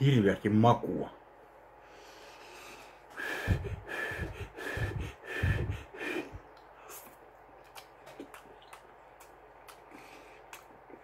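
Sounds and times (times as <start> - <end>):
chewing with mouth clicks: 6.5 - 11.0.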